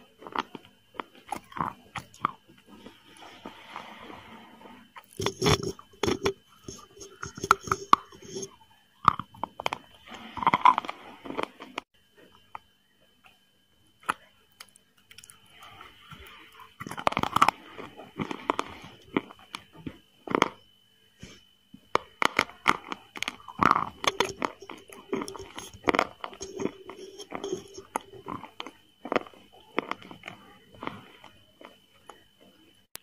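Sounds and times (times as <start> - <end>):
crunching and wet chewing: 0.0 - 11.9, 14.0 - 20.6, 21.9 - 33.0.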